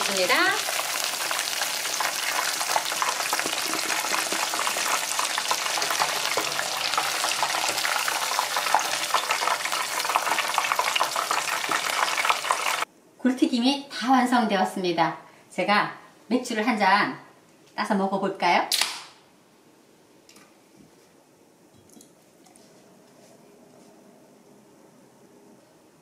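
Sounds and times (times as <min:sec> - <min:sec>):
oysters deep-frying in oil: 0:00.0 - 0:12.9.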